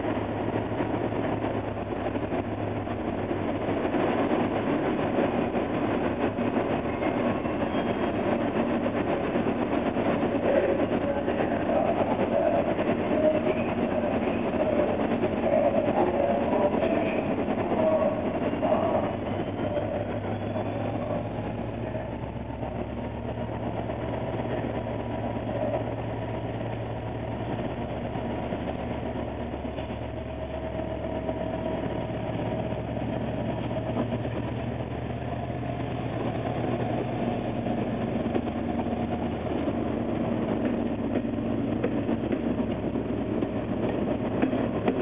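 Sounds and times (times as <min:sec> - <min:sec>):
diesel locomotive engine throbbing: 0:00.0 - 0:45.0
train wheel clicks over rail joints: 0:40.3 - 0:45.0.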